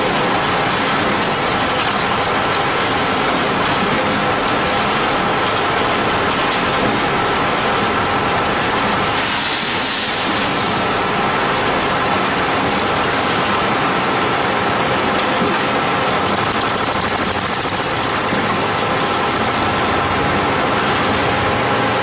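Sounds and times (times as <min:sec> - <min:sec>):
concrete pump machine running: 0:00.0 - 0:22.0
hissing burst: 0:09.0 - 0:11.1.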